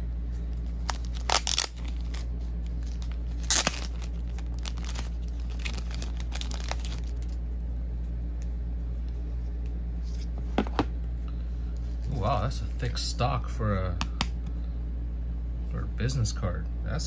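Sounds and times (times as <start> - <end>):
steady low hum: 0.0 - 17.0
plastic bag crinkling: 0.8 - 7.4.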